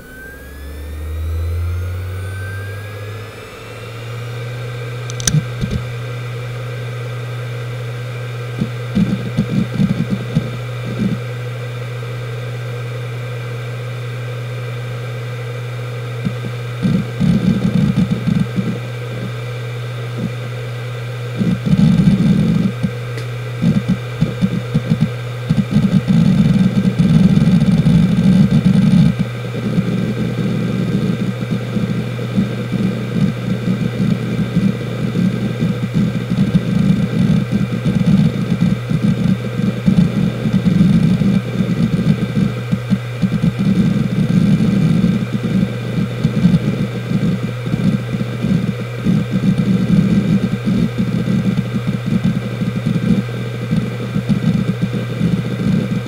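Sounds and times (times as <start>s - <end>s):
hard drive humming: 0.0s - 56.0s
hard drive seek clicking: 3.8s - 12.8s, 15.5s - 56.0s.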